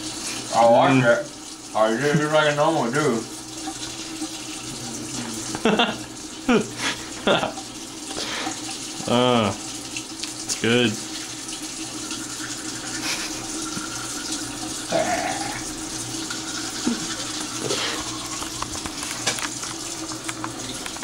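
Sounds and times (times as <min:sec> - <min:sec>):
tap running: 0:03.3 - 0:21.0
toothbrush scrubbing teeth: 0:04.0 - 0:09.6, 0:12.8 - 0:14.1, 0:14.9 - 0:21.0.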